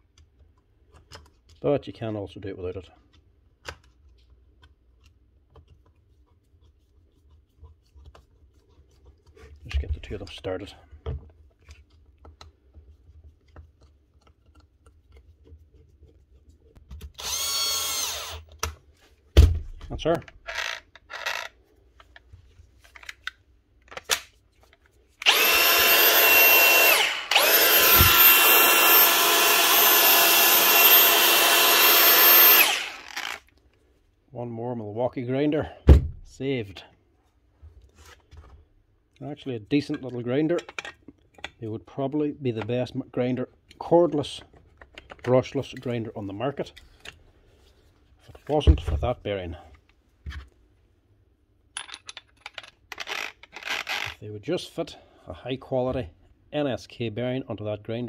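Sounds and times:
screwdriver turning a screw: 0:17.0 - 0:18.6, 0:20.4 - 0:21.6, 0:25.2 - 0:33.5, 0:52.4 - 0:54.2
angle grinder high whine: 0:25.2 - 0:33.4.

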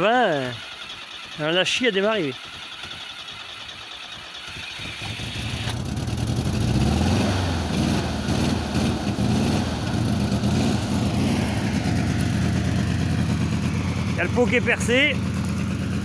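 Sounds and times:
car engine starting and running unevenly: 0:00.0 - 0:16.0.

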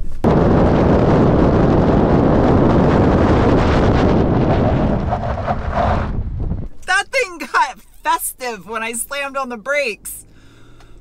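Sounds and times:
wind buffeting microphone: 0:00.0 - 0:06.8.

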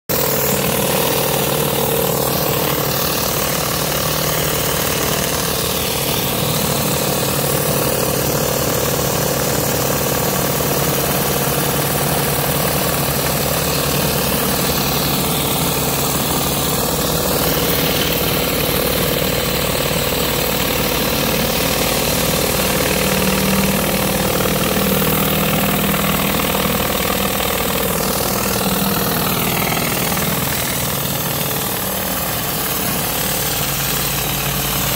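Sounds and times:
pressure washer motor drone: 0:00.1 - 0:34.9
hiss of water jets: 0:10.9 - 0:34.9.

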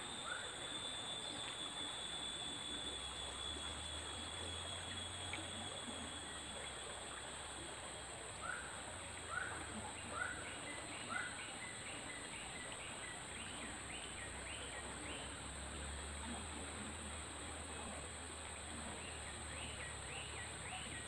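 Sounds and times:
bird whistling call: 0:00.0 - 0:07.6
high insect buzz: 0:00.0 - 0:21.0.

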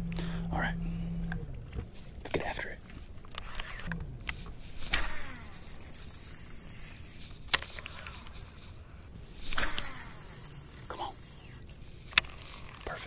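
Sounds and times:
fishing line cast rush: 0:04.7 - 0:08.6, 0:09.3 - 0:12.9
fishing reel clicks: 0:04.8 - 0:08.7, 0:09.4 - 0:13.0.

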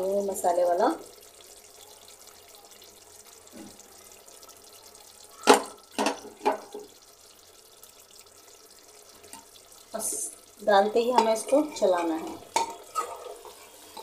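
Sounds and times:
chicken sizzling: 0:00.0 - 0:14.0
spoon knocking against pot: 0:11.1 - 0:13.3.

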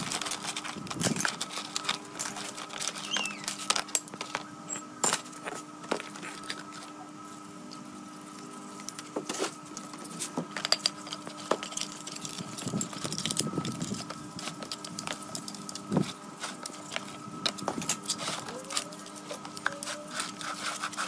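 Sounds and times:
metal parts clinking: 0:00.0 - 0:05.5
steady background hum: 0:00.0 - 0:21.0.

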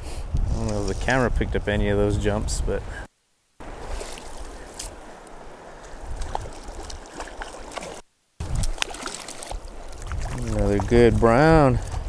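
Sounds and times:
river current rushing: 0:03.6 - 0:11.6
small splashes and knocks: 0:03.7 - 0:05.0, 0:05.8 - 0:12.0.

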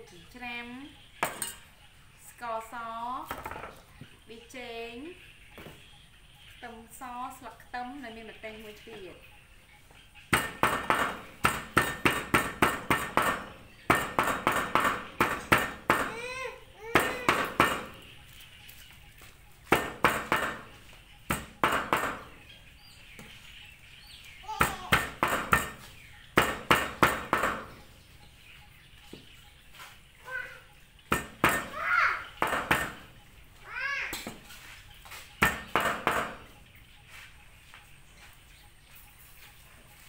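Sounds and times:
cleaver chopping meat: 0:10.4 - 0:16.2, 0:19.7 - 0:20.7, 0:24.7 - 0:27.7, 0:31.1 - 0:31.7.

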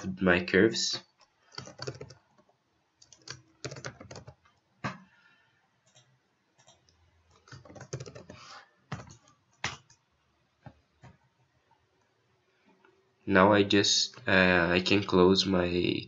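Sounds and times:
computer keyboard typing: 0:01.5 - 0:05.0, 0:05.9 - 0:10.0.

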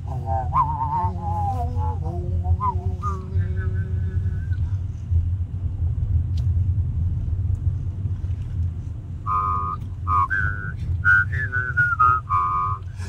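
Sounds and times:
car cabin rumble: 0:00.0 - 0:13.0
person whistling a melody: 0:00.2 - 0:04.6, 0:09.3 - 0:12.9.

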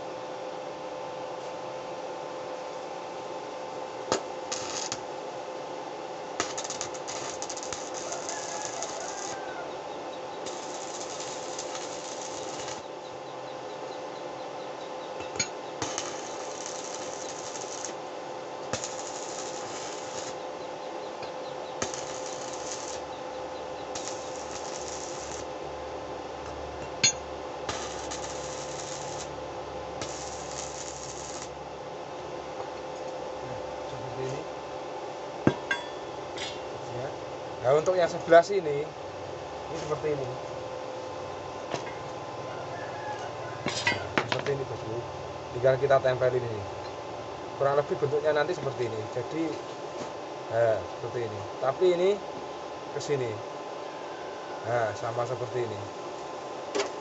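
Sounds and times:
steady electrical hum: 0:00.0 - 0:57.0
welding arc sizzling and crackling: 0:04.1 - 0:05.2, 0:06.4 - 0:09.8, 0:10.4 - 0:13.1, 0:15.2 - 0:20.6, 0:21.2 - 0:25.8, 0:26.4 - 0:31.8.

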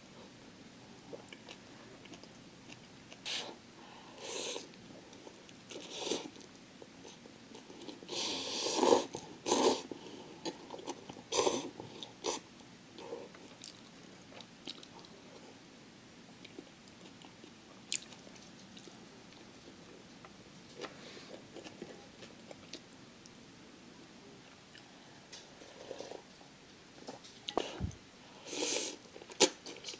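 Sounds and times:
person slurping noodles: 0:08.1 - 0:09.9
person chewing: 0:13.0 - 0:15.2, 0:16.4 - 0:19.6.

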